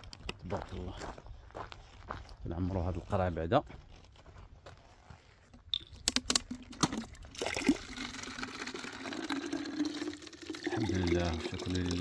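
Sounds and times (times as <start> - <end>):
sharp clicks and knocks: 5.7 - 7.0
water filling plastic bottle: 5.8 - 12.0.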